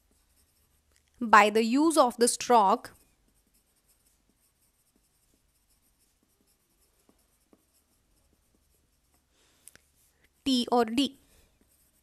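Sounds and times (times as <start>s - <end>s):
soft pencil ticks: 0.0s - 1.2s, 2.9s - 10.4s
pencil scratching on paper: 0.0s - 12.0s.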